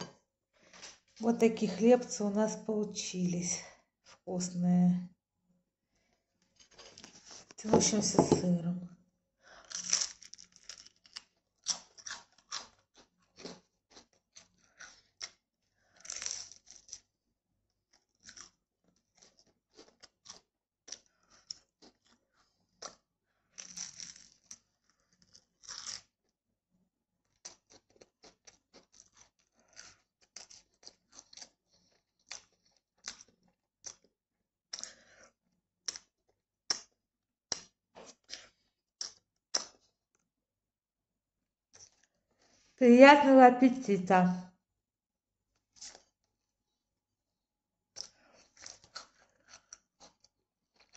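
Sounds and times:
crunching and chewing crispbread: 6.0s - 7.6s, 9.3s - 40.4s, 41.7s - 42.8s, 45.5s - 47.0s, 47.8s - 50.9s.

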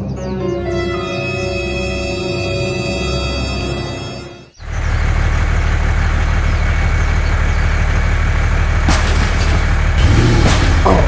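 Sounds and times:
music: 0.0s - 4.6s
diesel engine running: 2.2s - 11.0s.

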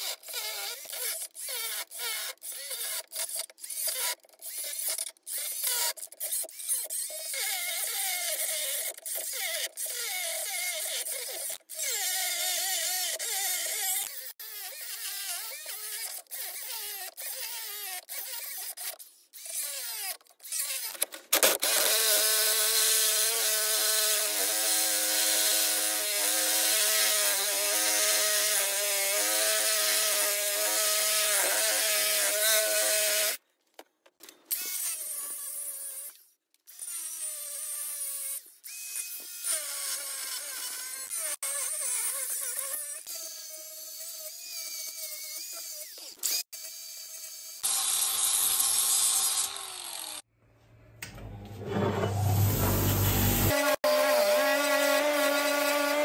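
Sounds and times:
angle grinder motor whine: 47.6s - 50.2s, 51.1s - 56.0s
grinding disc hissing on metal: 51.6s - 53.6s.

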